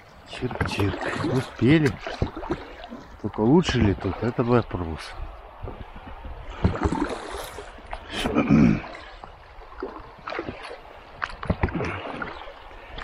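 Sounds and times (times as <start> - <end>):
paddle splashing in water: 0.0 - 13.0
running water: 0.0 - 13.0
paddle knocks: 0.5 - 2.8.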